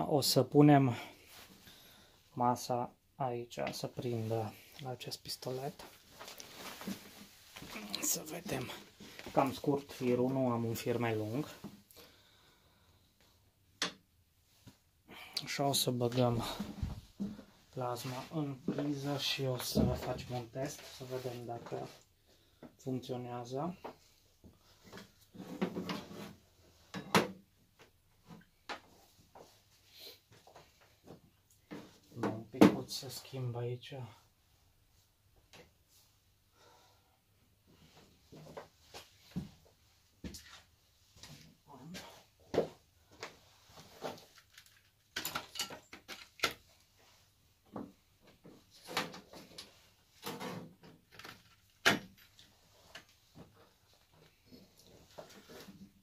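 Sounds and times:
rustles and light knocks: 0:03.6 - 0:11.9, 0:16.0 - 0:22.0
tools and cables handled on metal bench: 0:24.8 - 0:29.5, 0:40.3 - 0:56.0.

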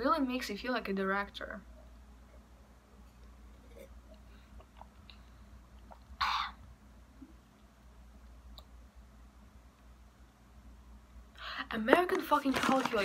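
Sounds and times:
mouth clicks while sipping: 0:04.6 - 0:06.5.

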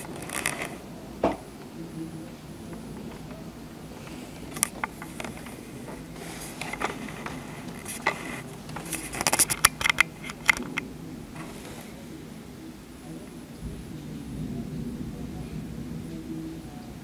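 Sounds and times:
low background noise: 0:00.0 - 0:17.0
sharp clicks and taps: 0:06.6 - 0:10.8.

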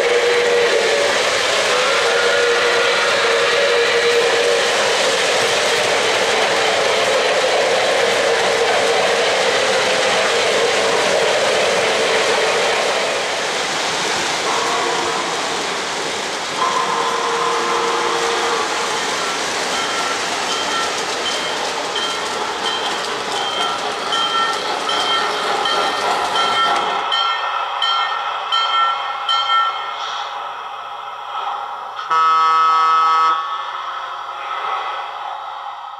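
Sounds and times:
train whistle: 0:00.0 - 0:09.0, 0:14.4 - 0:15.7, 0:16.6 - 0:19.3, 0:32.0 - 0:33.7
model train wheels clattering: 0:18.9 - 0:27.4.

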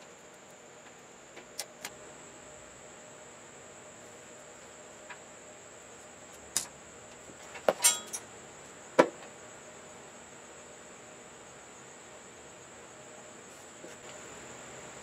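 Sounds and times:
metal parts and tools clinking: 0:07.7 - 0:08.2.

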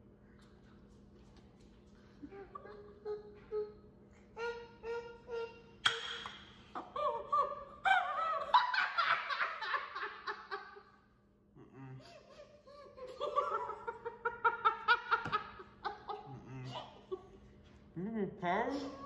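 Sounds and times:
woman laughing hard: 0:06.8 - 0:10.9, 0:12.3 - 0:17.3.

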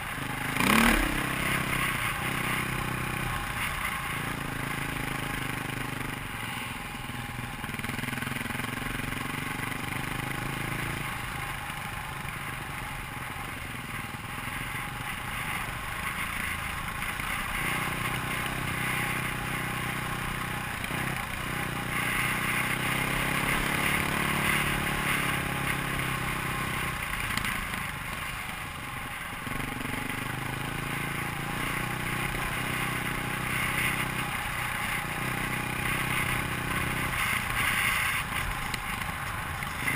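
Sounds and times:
dirt bike engine revving: 0:00.0 - 0:06.7.

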